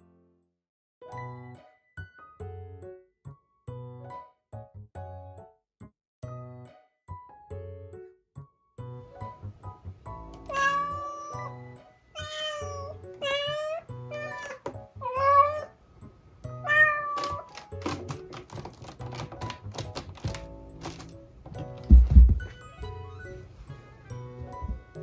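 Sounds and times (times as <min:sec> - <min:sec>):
background music: 0:01.1 - 0:25.0
cat meowing: 0:10.4 - 0:11.6, 0:12.2 - 0:15.8, 0:16.6 - 0:17.6.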